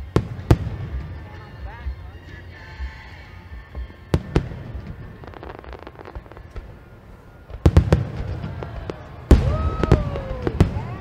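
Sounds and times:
fireworks bangs and booms: 0.0 - 2.1, 3.7 - 11.0
fireworks crackling: 0.0 - 11.0.

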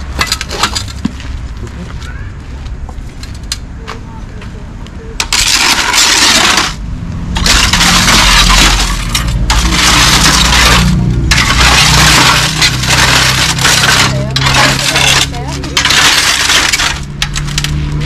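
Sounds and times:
glass panes clinking and scraping: 0.1 - 1.0, 5.2 - 6.8, 7.4 - 18.0.

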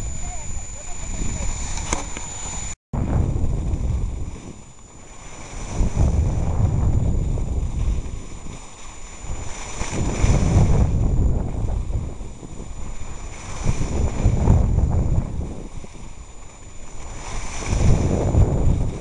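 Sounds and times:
wind buffeting microphone: 0.0 - 19.0
skis sliding over snow: 3.8 - 11.0, 15.5 - 19.0.

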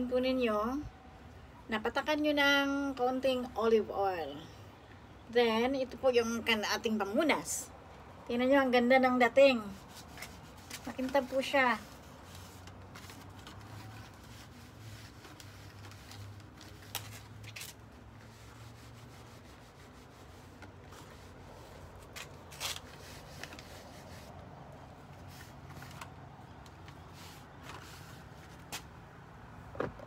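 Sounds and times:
cloth rustling leaves: 9.5 - 29.1.

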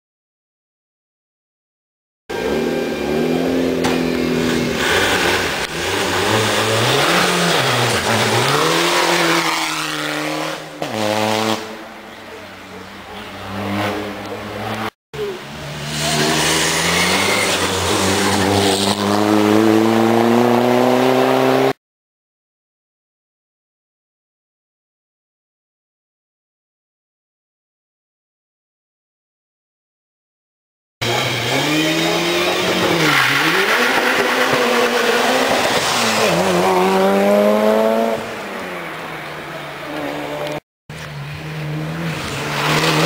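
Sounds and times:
race car engine revving: 2.3 - 12.0, 12.7 - 21.8, 31.0 - 43.0.

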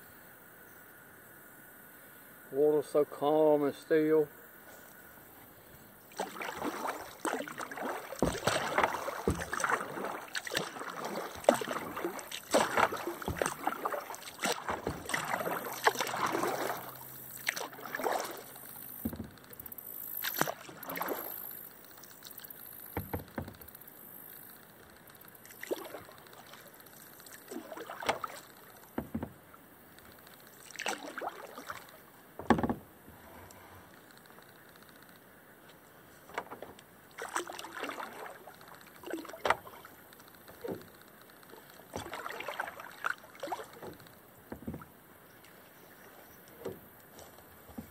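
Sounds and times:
paddle strokes splashing water: 5.4 - 34.7, 35.6 - 47.9
paddle knocks: 6.2 - 18.4, 19.0 - 19.5, 22.9 - 23.7, 27.6 - 29.5, 30.8 - 32.9, 36.2 - 41.0, 41.9 - 45.0.

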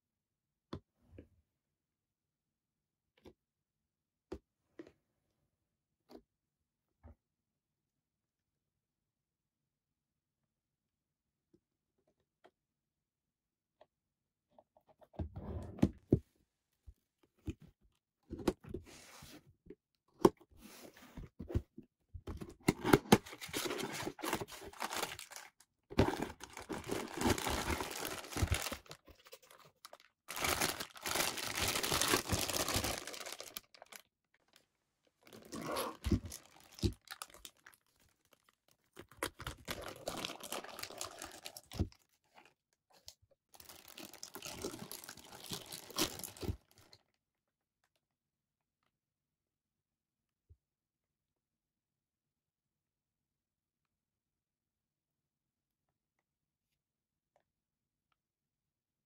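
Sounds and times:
plastic bags crinkling: 23.4 - 34.6, 35.2 - 38.5, 39.6 - 41.8, 43.6 - 46.7.

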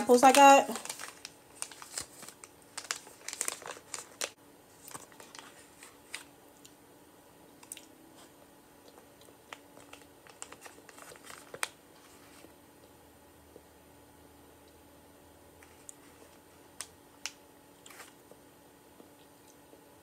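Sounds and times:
sample packets crinkling: 0.0 - 6.8, 9.4 - 12.6.

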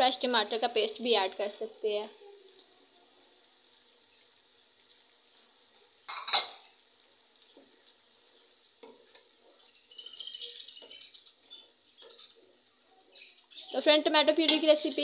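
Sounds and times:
onions sizzling: 0.0 - 15.0.

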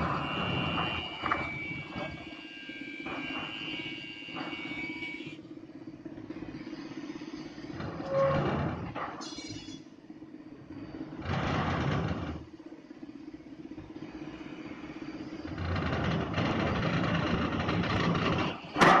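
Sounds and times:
truck diesel engine running: 9.8 - 19.0.

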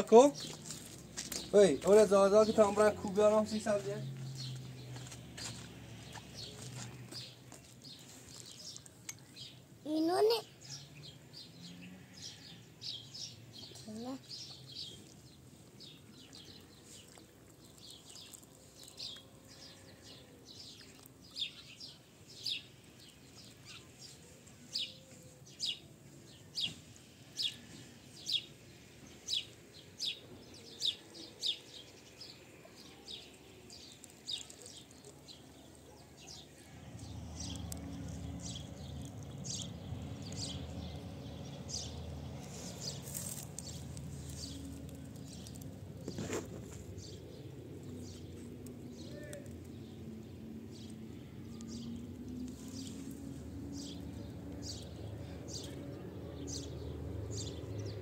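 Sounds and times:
small bird chirping: 4.3 - 50.0.

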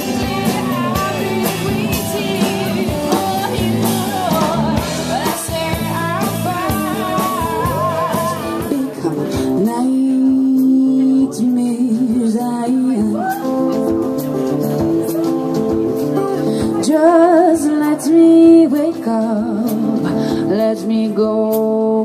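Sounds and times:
strummed acoustic guitars: 0.0 - 11.8
woman singing: 0.0 - 14.1, 15.2 - 22.0
drums: 0.0 - 22.0
electric guitar: 0.0 - 22.0.

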